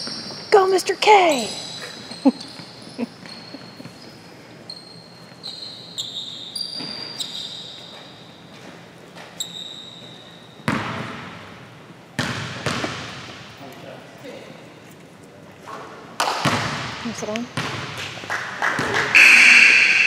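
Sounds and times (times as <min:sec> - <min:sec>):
sneakers squeaking on gym floor: 0:00.0 - 0:11.2
basketball bouncing: 0:10.6 - 0:11.4, 0:12.2 - 0:13.5, 0:16.3 - 0:18.2.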